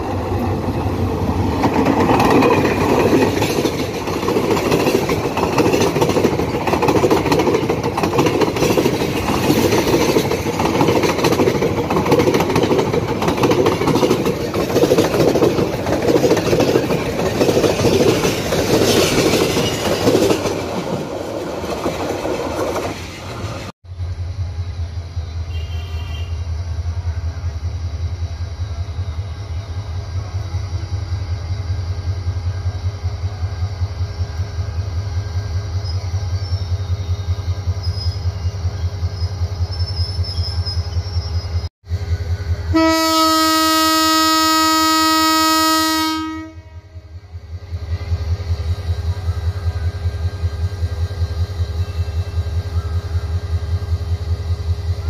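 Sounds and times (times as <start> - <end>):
diesel locomotive throbbing: 0.0 - 55.0
train horn blast: 25.5 - 26.5, 42.7 - 47.1.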